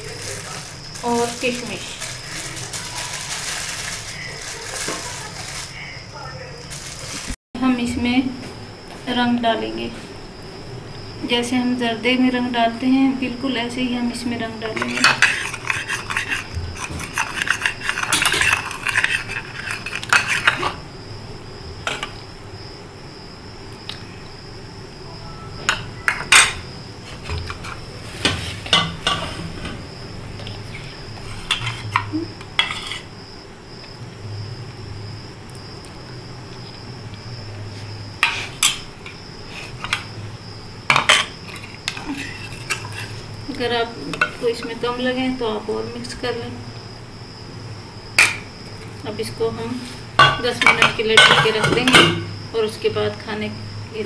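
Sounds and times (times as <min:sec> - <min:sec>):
metal spoon scraping steel pot: 0:14.6 - 0:20.8, 0:30.7 - 0:33.1, 0:41.0 - 0:43.2.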